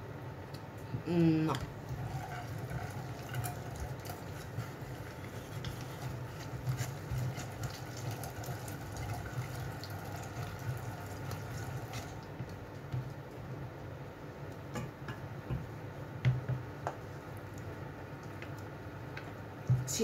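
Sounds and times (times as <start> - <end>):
food mill squelching: 1.8 - 12.4.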